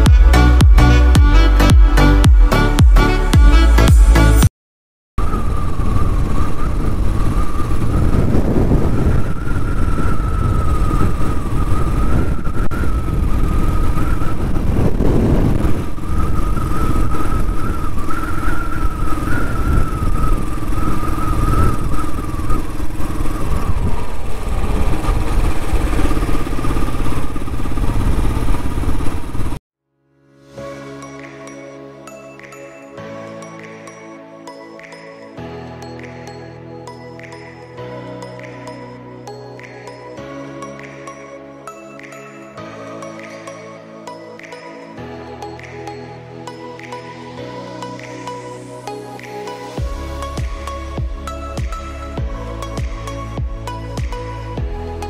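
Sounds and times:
high-pitched whine: 0:00.0 - 0:04.5, 0:05.2 - 0:29.6, 0:30.6 - 0:55.0
motorcycle engine and road rumble: 0:12.5 - 0:29.6.

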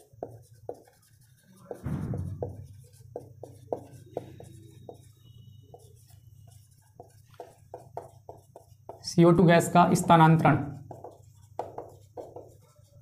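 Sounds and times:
marker writing on whiteboard: 0:00.0 - 0:13.0
marker squeak: 0:00.8 - 0:08.6.

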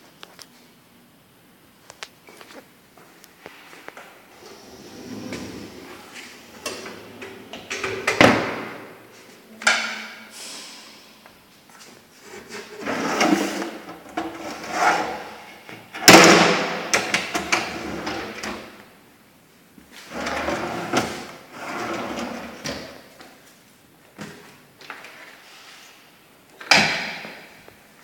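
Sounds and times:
drawers sliding open and shut: 0:04.3 - 0:09.0, 0:12.3 - 0:18.7, 0:20.0 - 0:23.0.

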